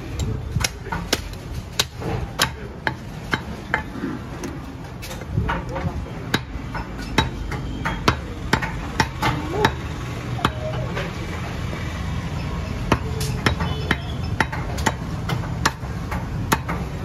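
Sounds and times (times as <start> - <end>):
cleaver chopping on wooden block: 0.6 - 3.9, 6.3 - 10.6, 12.9 - 16.9.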